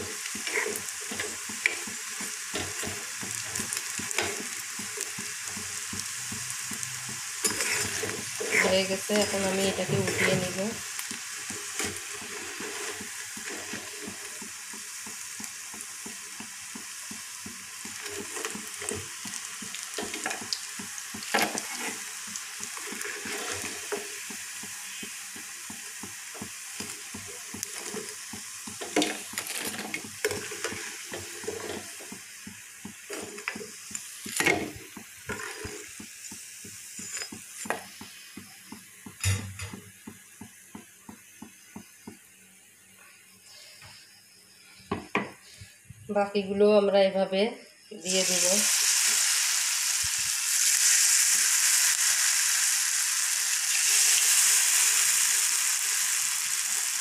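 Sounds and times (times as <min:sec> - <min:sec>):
oil sizzling: 0:00.0 - 0:46.2, 0:47.9 - 0:57.0
metal spoon clinking on pan: 0:07.4 - 0:08.0.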